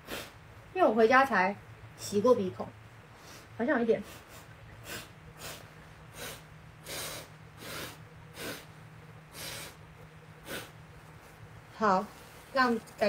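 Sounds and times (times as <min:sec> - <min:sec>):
woman blowing nose into tissue: 0:00.0 - 0:00.4, 0:04.0 - 0:09.8, 0:10.4 - 0:10.7.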